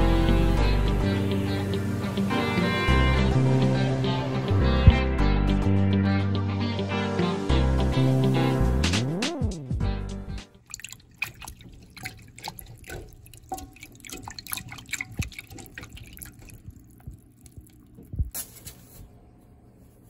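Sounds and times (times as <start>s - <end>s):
water splashing and dripping: 10.5s - 18.4s.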